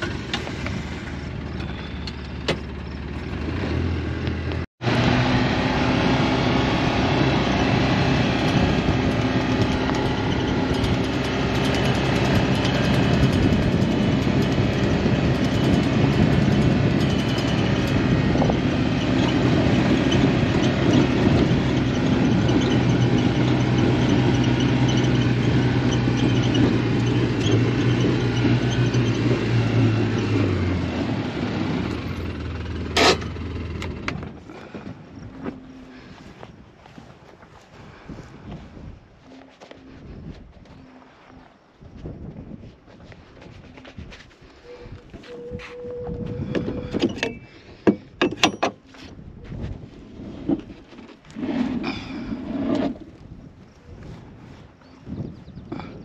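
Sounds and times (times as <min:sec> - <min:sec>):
vehicle engine running: 0:00.0 - 0:41.6
tyre and road noise: 0:00.0 - 0:56.0.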